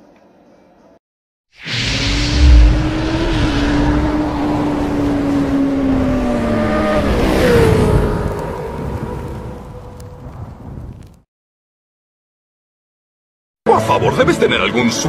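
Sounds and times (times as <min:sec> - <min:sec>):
deep boom: 0:01.6 - 0:04.6.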